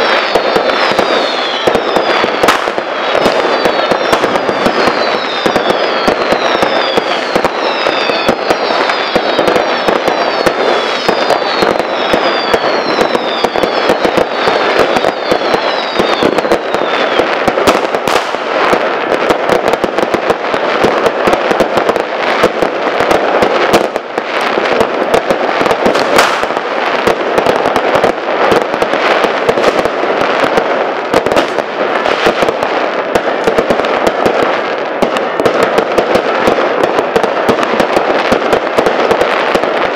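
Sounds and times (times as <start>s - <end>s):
falling whistles: 0.0s - 17.4s
fireworks bangs and crackling: 0.0s - 39.9s.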